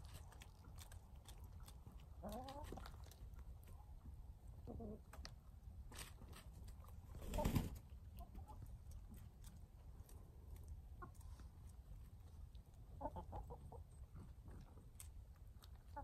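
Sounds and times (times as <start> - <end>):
hens clucking: 2.2 - 2.8, 4.6 - 5.3, 12.8 - 14.7
birds scratching in soil: 5.9 - 7.9.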